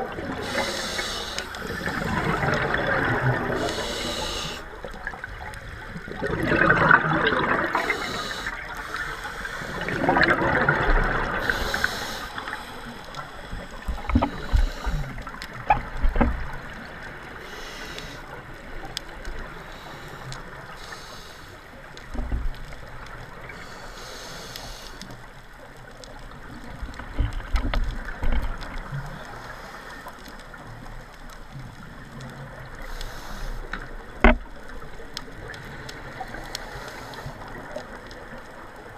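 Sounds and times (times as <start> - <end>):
underwater exhaled bubbles gurgling: 0.0 - 38.9
regulator hisses: 0.3 - 2.1, 3.6 - 4.7, 7.7 - 9.9, 11.4 - 15.2, 17.4 - 18.3, 19.7 - 21.6, 23.6 - 25.1, 32.8 - 33.7.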